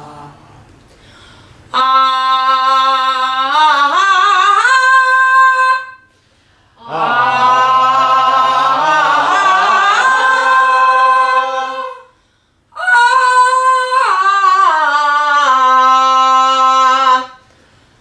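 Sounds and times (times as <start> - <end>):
person breathing in: 0.9 - 1.7
women singing held notes: 6.8 - 12.2.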